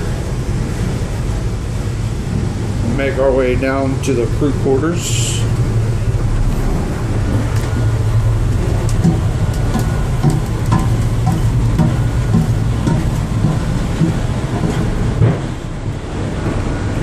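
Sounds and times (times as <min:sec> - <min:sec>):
boat machinery droning: 0:00.0 - 0:17.0
small knocks: 0:08.9 - 0:15.5
footsteps: 0:09.0 - 0:15.6.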